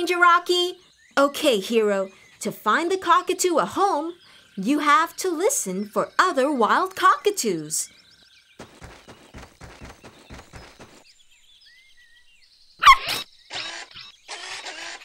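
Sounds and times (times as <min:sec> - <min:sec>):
mechanical whirring: 0:13.0 - 0:15.0.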